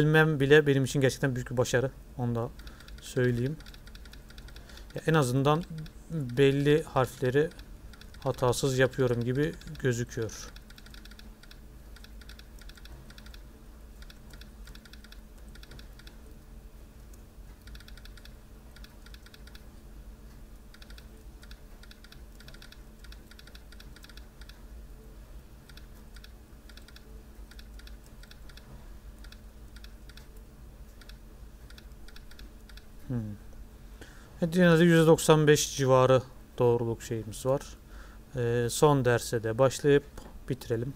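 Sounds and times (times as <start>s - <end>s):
low steady hum: 0.0s - 40.9s
laptop keyboard typing: 2.6s - 16.2s, 17.6s - 19.7s, 20.7s - 24.6s, 25.6s - 30.4s, 31.0s - 32.9s.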